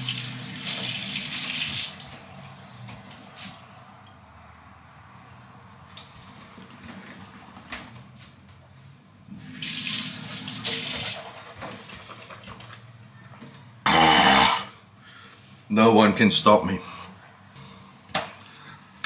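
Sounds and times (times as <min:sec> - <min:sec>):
kitchen tap running: 0:00.0 - 0:02.6, 0:09.4 - 0:12.8.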